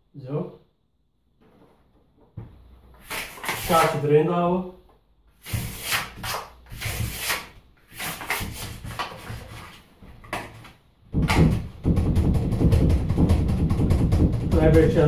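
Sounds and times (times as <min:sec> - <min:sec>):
plastic card scraping in door gap: 0:03.0 - 0:04.0, 0:05.4 - 0:10.8.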